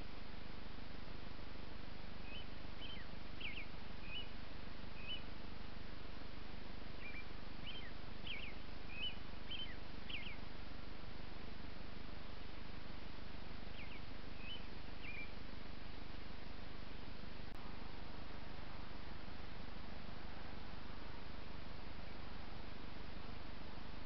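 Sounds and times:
songbird chirping: 2.0s - 16.4s.

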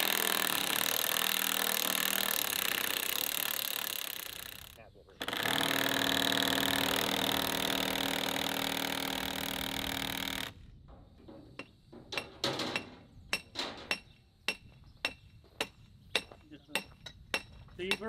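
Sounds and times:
cordless drill running: 0.0s - 10.6s.

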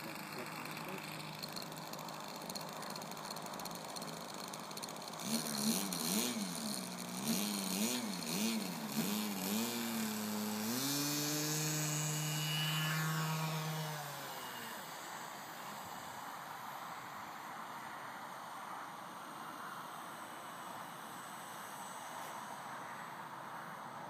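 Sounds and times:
model aircraft motor: 0.0s - 17.8s.

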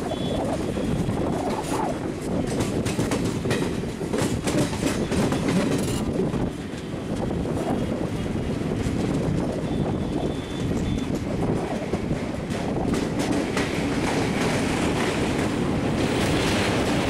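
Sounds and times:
clickety-clack over rail joints: 0.0s - 17.0s
train wheels rumbling on rails: 0.0s - 17.0s.

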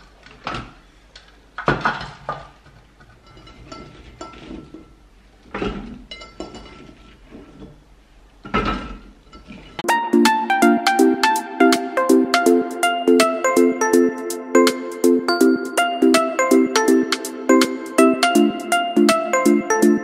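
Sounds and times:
light music with mallet percussion: 9.8s - 20.0s.

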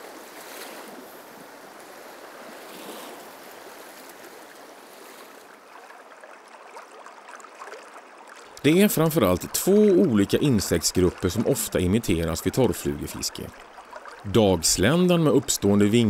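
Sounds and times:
river water rushing over stones: 5.5s - 16.0s.

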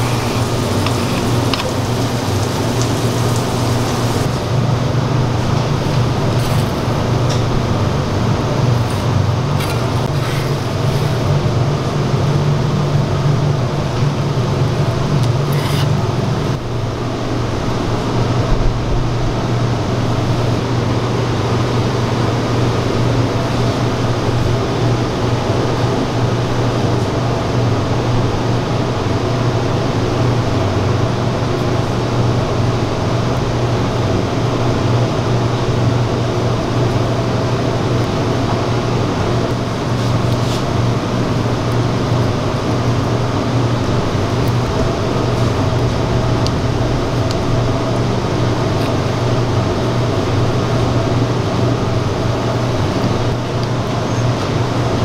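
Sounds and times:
faint hiss: 0.0s - 4.3s
kitchen equipment hum: 0.0s - 12.8s, 14.4s - 17.7s.

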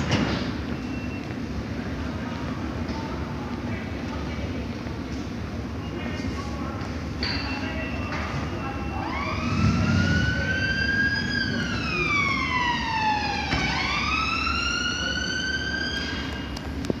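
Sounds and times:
train traction motors whining: 8.7s - 17.0s.

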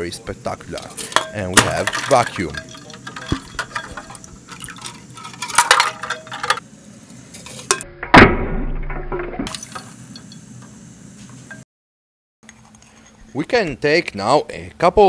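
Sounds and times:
ice clinking against glass bowl: 0.8s - 6.6s.

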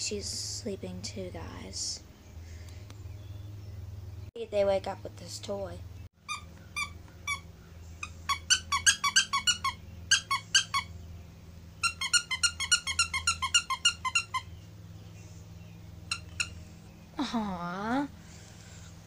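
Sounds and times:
dog toy squeaking: 6.2s - 10.9s, 11.8s - 14.6s, 16.1s - 16.6s.

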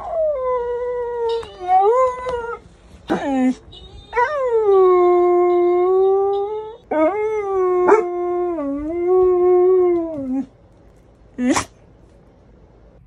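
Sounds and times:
dog howling: 4.2s - 10.5s.

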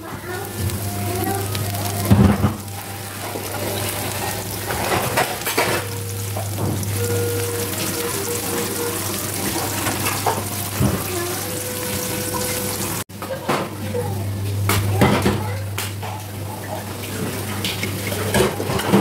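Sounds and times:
sauce bubbling and sizzling: 0.0s - 13.1s.

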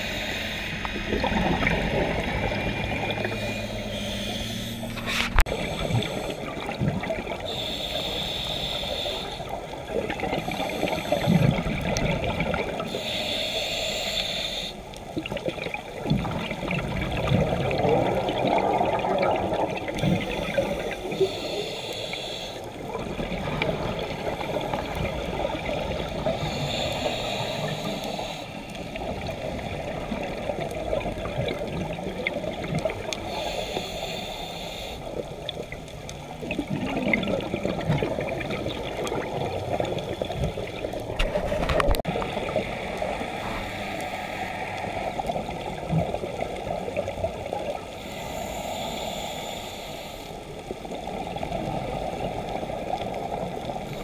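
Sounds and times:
hissing inhale through regulator: 0.0s - 1.3s, 2.2s - 12.0s, 12.7s - 15.2s, 17.7s - 54.0s
bubbling exhaled air: 0.0s - 13.2s, 15.2s - 34.2s, 35.0s - 49.6s.

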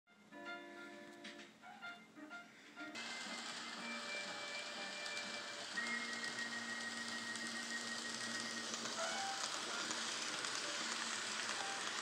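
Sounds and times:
faint electric motor hum: 2.9s - 12.0s
model train wheels hissing on rails: 3.0s - 12.0s.

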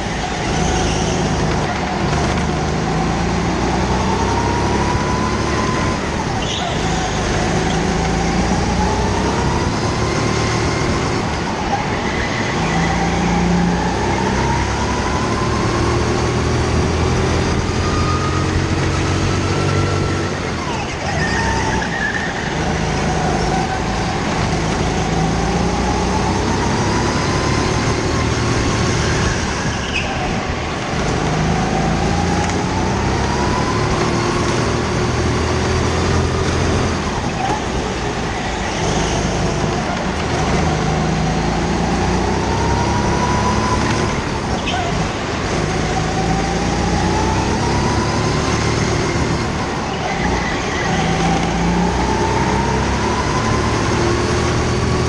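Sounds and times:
go-kart engine revving: 0.0s - 55.0s.

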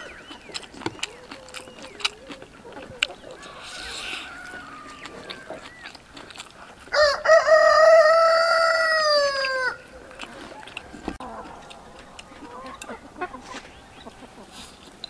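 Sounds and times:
rooster crowing: 3.4s - 5.8s, 6.9s - 12.8s.

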